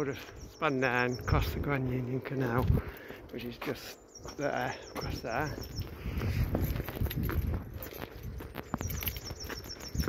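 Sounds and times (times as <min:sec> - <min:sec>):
low wind rumble: 0:00.0 - 0:04.1, 0:04.8 - 0:10.0
footsteps on paving: 0:01.5 - 0:10.0.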